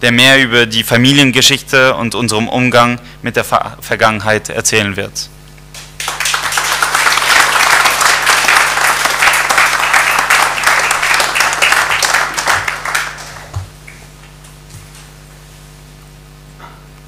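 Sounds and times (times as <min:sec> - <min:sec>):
audience applauding: 0:05.8 - 0:14.4.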